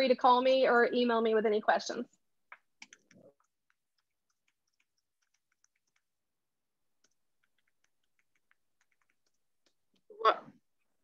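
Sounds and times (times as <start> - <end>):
typing on computer keyboard: 2.8 - 6.1, 7.0 - 9.4.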